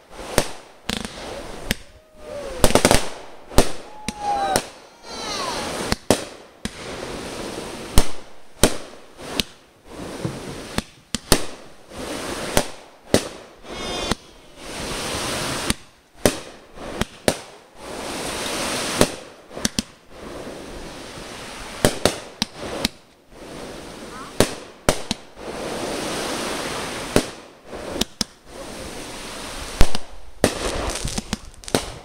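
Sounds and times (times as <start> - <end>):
fireworks bangs: 0.0 - 32.0
fireworks hissing: 0.0 - 32.0
firework whistle: 0.3 - 6.1, 13.6 - 15.8.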